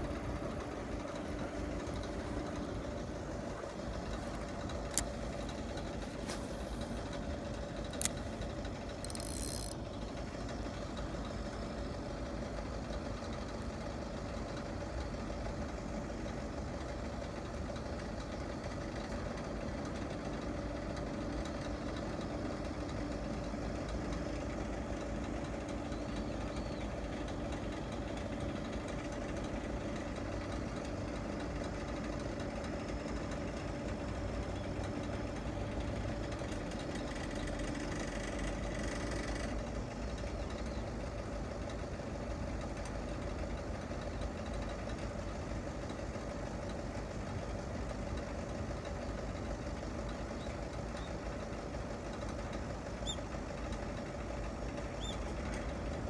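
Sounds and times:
machine drone: 0:00.0 - 0:12.0
steady hum tones: 0:00.0 - 0:12.7.

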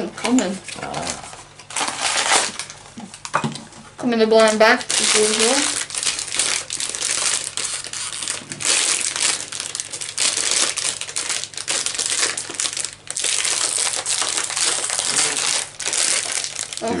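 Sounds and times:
foil bag crinkling: 0:00.3 - 0:03.3, 0:04.4 - 0:17.0.

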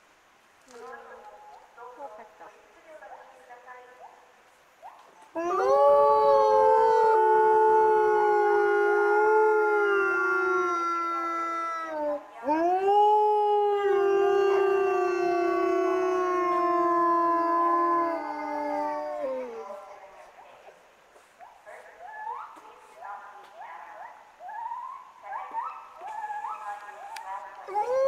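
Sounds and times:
wolves howling: 0:05.3 - 0:20.0, 0:27.6 - 0:28.0.

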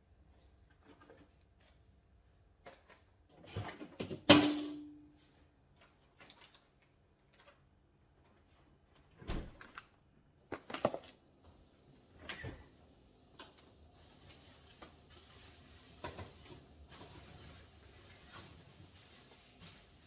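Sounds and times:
refrigerator door opening: 0:09.2 - 0:09.6.

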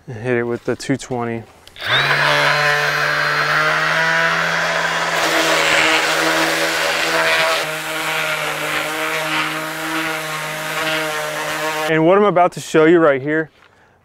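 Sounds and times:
orbit sander sanding wood: 0:01.8 - 0:11.9.

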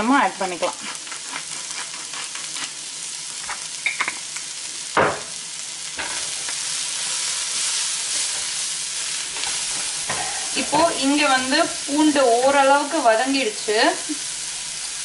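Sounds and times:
vegetables sizzling in a frying pan: 0:00.0 - 0:15.0
spatula knocking on pan: 0:10.1 - 0:11.2.

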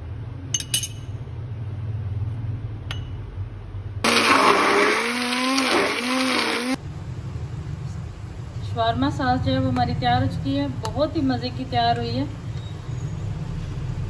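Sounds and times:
stick blender whirring: 0:04.0 - 0:06.8.

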